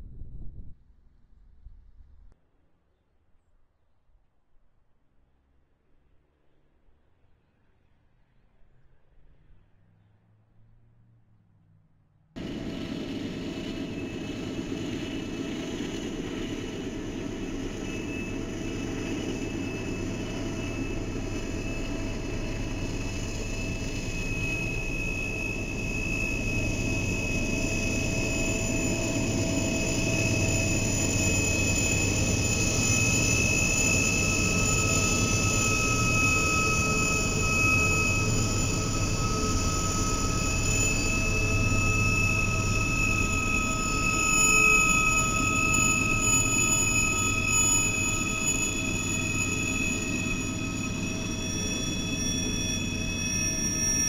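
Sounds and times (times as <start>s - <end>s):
lower whine: 6.1s - 54.0s
diesel locomotives rumbling past: 12.4s - 54.0s
high whine: 12.4s - 54.0s.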